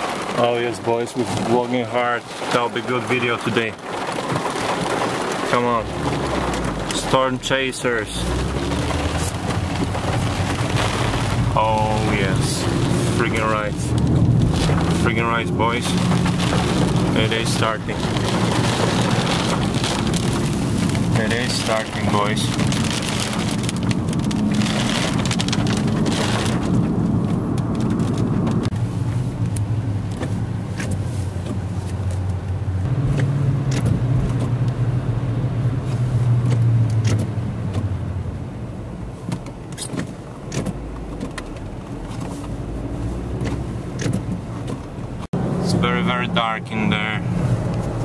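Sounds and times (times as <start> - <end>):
raindrops ticking on glass: 0.0 - 28.7
hiss of rain or wind: 0.0 - 37.6
car engine and road hum: 0.0 - 48.0.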